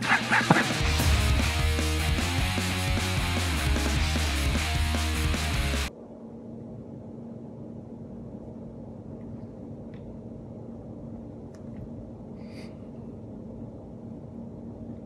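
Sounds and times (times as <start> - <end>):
low room hum: 5.9 - 15.0.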